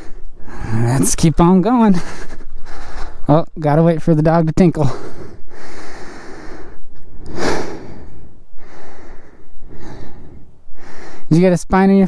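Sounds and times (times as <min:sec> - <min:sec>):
person breathing heavily: 0:00.0 - 0:01.0, 0:01.8 - 0:03.3, 0:04.8 - 0:11.3.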